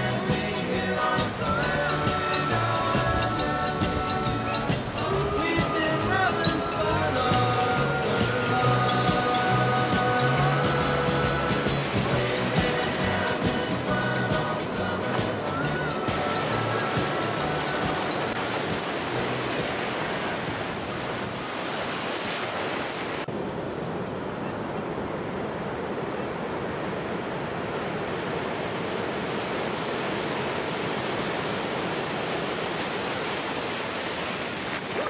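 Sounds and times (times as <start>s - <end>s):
surf breaking: 0.0s - 23.4s.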